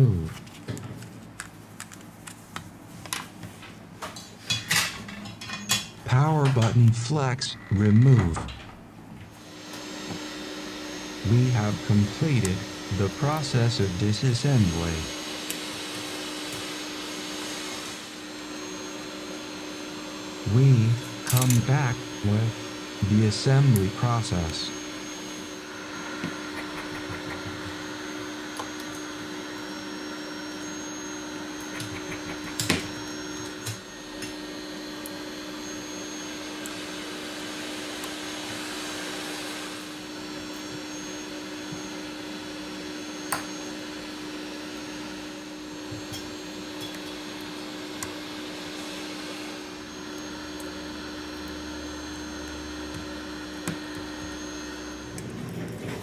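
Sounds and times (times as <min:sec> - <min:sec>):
small fan whirring: 0:00.0 - 0:56.0.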